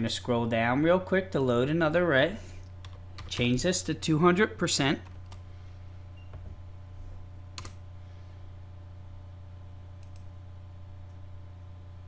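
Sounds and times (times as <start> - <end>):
steady low hum: 0.0 - 12.0
computer clicks: 7.6 - 7.8, 10.0 - 10.3.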